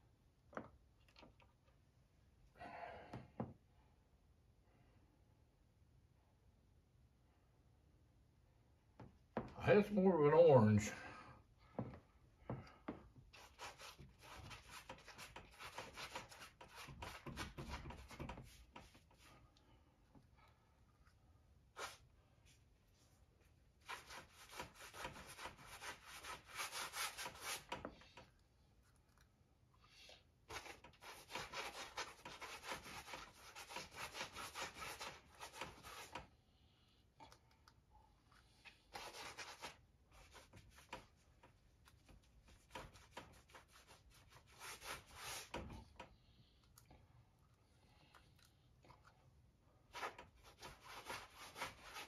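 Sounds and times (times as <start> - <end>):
hand rubbing paint on canvas: 13.4 - 19.3, 23.8 - 27.8, 30.5 - 36.2, 38.9 - 41.2, 42.0 - 45.6, 50.0 - 52.0.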